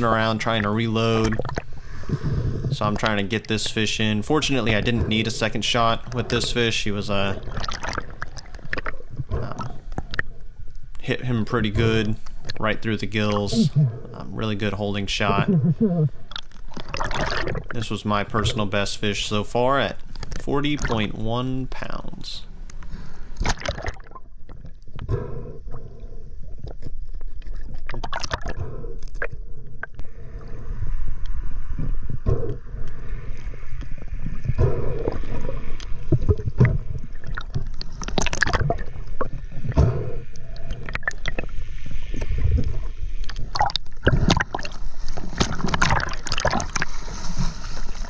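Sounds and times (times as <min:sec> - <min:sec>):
water splashing and bubbles: 0:00.0 - 0:22.1, 0:23.2 - 0:48.0
muffled underwater gurgling: 0:11.6 - 0:16.2.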